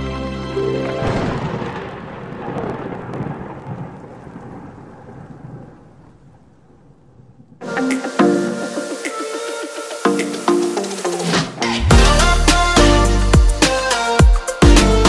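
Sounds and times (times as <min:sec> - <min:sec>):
music: 0:00.0 - 0:01.0, 0:07.6 - 0:15.0
held musical chord: 0:11.8 - 0:15.0.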